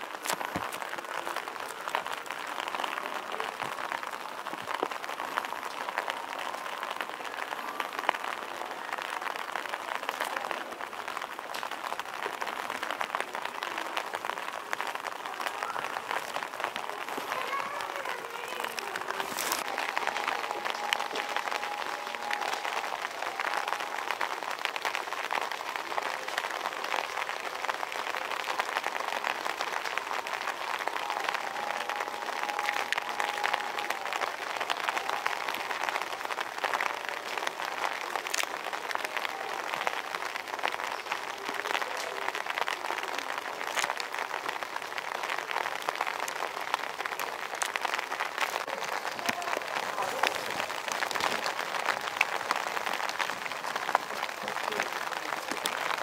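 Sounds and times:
steady rain falling: 0.0s - 56.0s.

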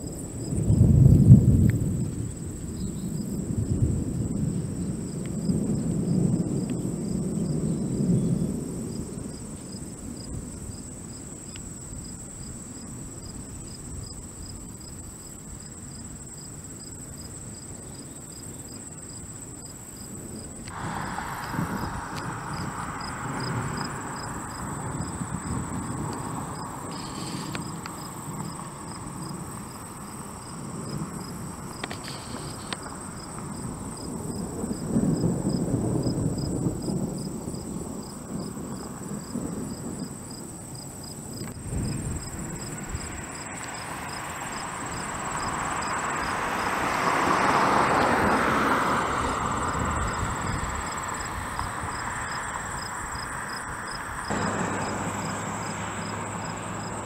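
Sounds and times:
crickets chirping: 0.0s - 57.0s
distant thunder rumbling: 0.1s - 16.4s, 17.2s - 57.0s
high insect buzz: 14.5s - 34.4s, 41.1s - 48.6s, 49.6s - 57.0s.

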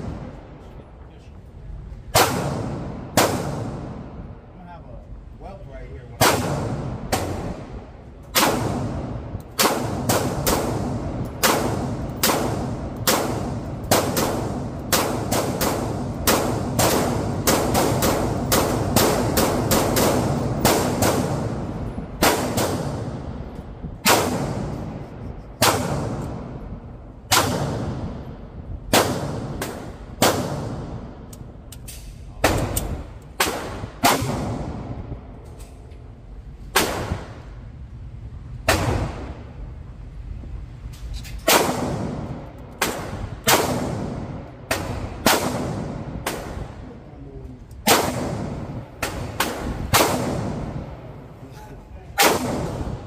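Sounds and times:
pistol shots echoing: 2.1s - 4.2s, 6.2s - 7.7s, 8.3s - 23.4s, 24.0s - 25.0s, 27.3s - 31.3s, 41.5s - 46.8s, 47.8s - 51.2s, 52.2s - 53.0s.

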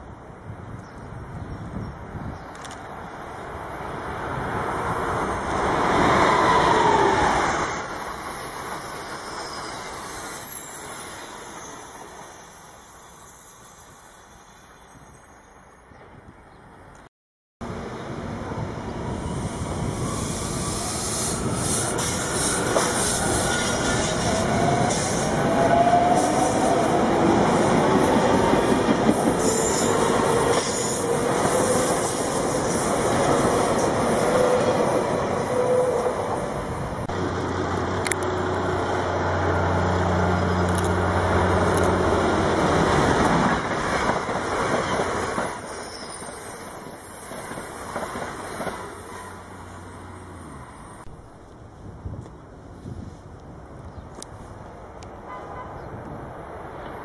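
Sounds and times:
train wheels rumbling on rails: 17.8s - 50.3s.

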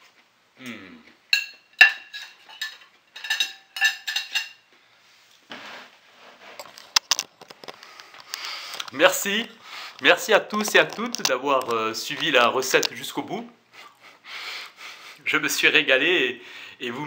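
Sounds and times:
knife and fork clinking on plate: 1.3s - 4.6s.

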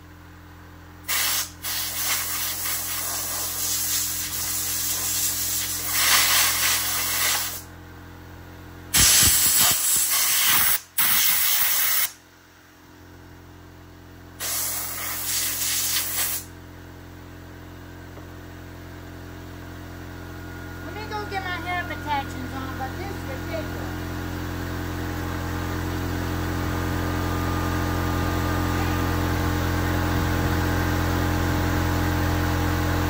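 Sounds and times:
compressed air blow gun hissing: 1.1s - 7.6s, 9.0s - 12.1s, 14.4s - 16.5s
steady low hum: 12.2s - 33.0s.

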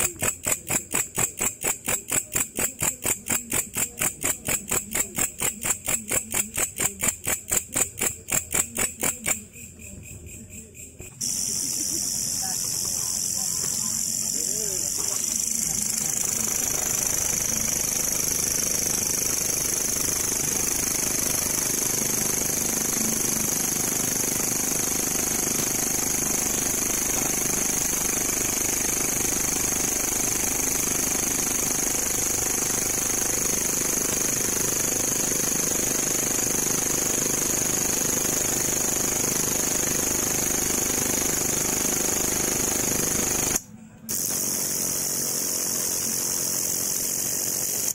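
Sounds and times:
katydid buzzing trill: 0.0s - 22.2s.

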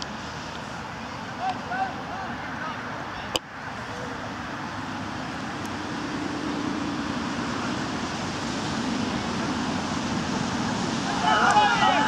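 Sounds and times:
rushing outdoor background noise: 0.0s - 12.0s.

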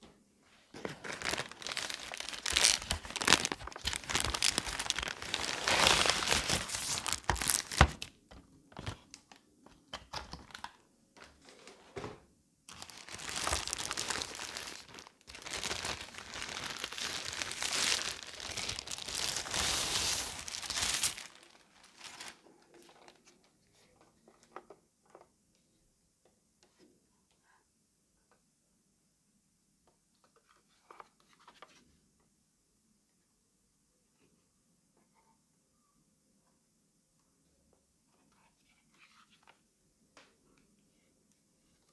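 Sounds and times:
plastic packaging crinkling: 0.8s - 8.1s, 12.7s - 23.2s.

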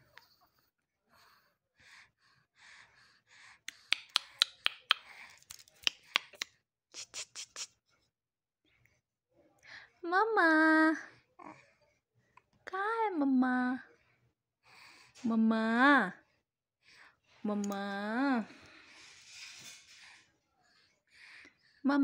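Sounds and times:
sharp mouth clicks: 3.7s - 7.7s.

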